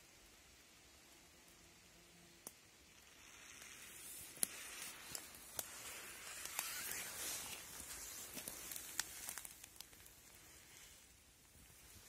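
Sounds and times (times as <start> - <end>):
leaves and twigs rustling: 3.0 - 12.0
twigs snapping: 4.3 - 10.4.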